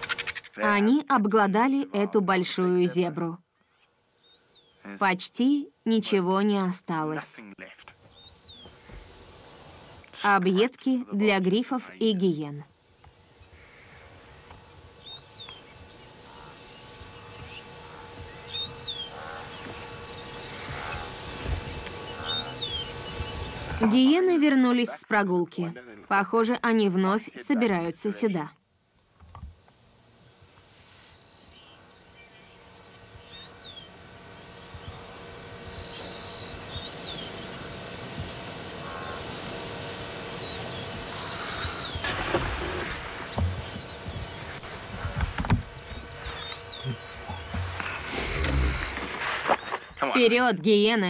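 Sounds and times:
lower bird calls: 0:00.0 - 0:00.7, 0:13.4 - 0:23.8, 0:38.7 - 0:39.4, 0:40.3 - 0:50.0
steady hiss: 0:00.0 - 0:51.0.

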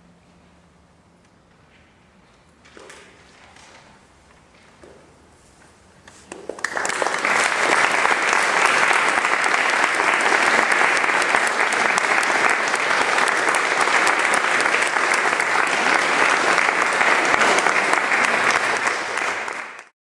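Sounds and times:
audience applauding: 0:06.3 - 0:20.0.

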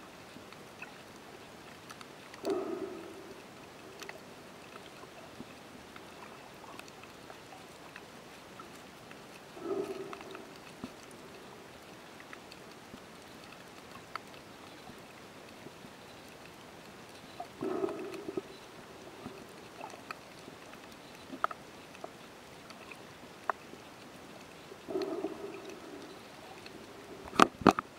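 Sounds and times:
faint underwater hiss: 0:00.0 - 0:27.9
sharp underwater clicks: 0:00.5 - 0:27.9
low underwater bursts: 0:02.4 - 0:04.4, 0:17.6 - 0:20.0, 0:24.8 - 0:27.5.

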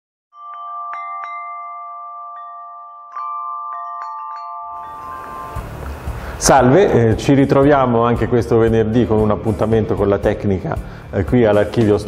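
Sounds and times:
bell-like chime jingle: 0:00.3 - 0:06.9.

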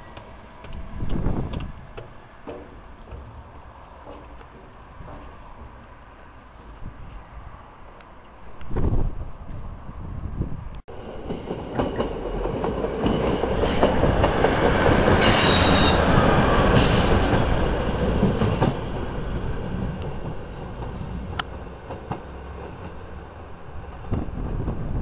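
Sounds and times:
rail-joint clicks: 0:00.0 - 0:07.3, 0:10.7 - 0:23.2
diesel train passing: 0:00.0 - 0:25.0
wheel squeal: 0:15.2 - 0:17.3.

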